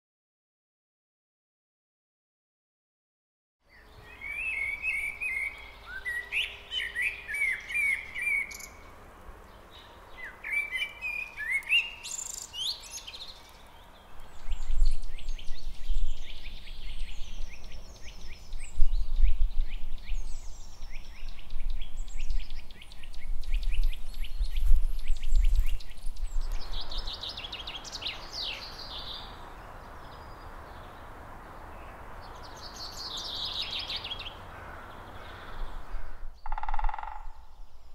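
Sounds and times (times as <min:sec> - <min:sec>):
blackbird singing fluty phrases: 0:03.7 - 0:08.9, 0:09.8 - 0:31.0, 0:31.8 - 0:34.4, 0:35.0 - 0:37.9.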